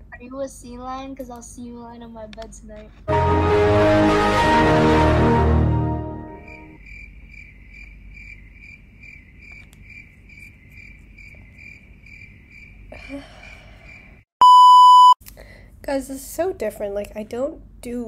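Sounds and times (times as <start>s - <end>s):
crickets chirping: 6.5s - 14.2s
censor bleep: 14.4s - 15.2s.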